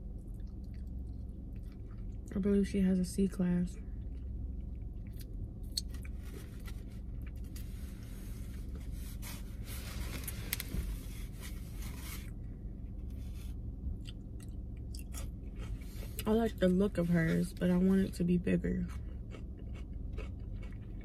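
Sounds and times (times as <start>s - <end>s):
chewing with crunches: 0.0s - 2.4s, 3.7s - 8.6s, 13.9s - 21.0s
low hum: 0.0s - 21.0s
rustling and scraping: 5.9s - 12.4s.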